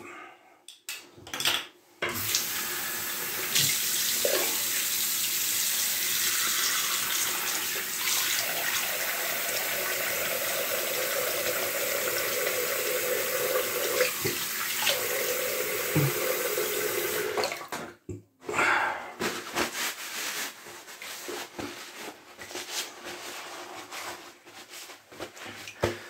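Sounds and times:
sink tap running: 2.1s - 4.9s, 6.3s - 17.6s.

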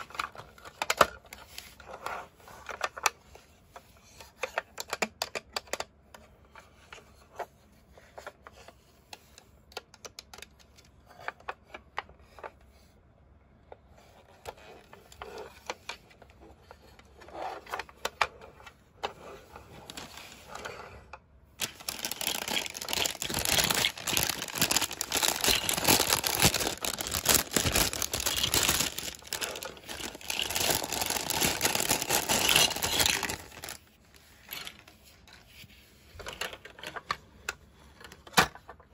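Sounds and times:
plastic toy parts clicking: 3.8s - 6.3s, 8.6s - 12.5s, 21.6s - 34.9s
plastic wrapping crinkling: 19.8s - 20.5s, 21.6s - 34.9s.

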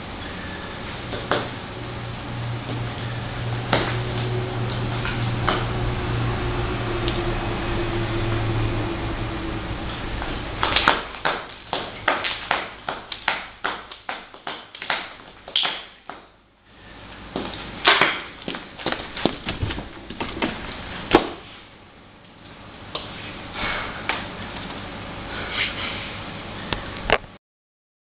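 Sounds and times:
steady low hum: 0.0s - 27.3s
boot heels clicking on tile floor: 10.2s - 16.4s, 17.2s - 21.5s.

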